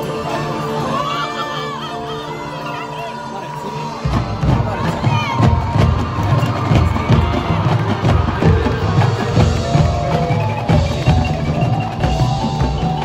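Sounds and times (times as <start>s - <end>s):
drum hits: 4.0s - 13.0s
mallet keyboards: 4.0s - 13.0s.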